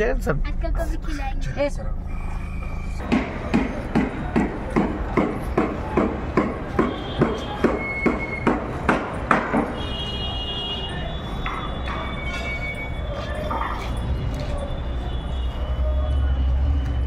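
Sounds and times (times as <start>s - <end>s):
heavy knocks: 3.0s - 9.8s.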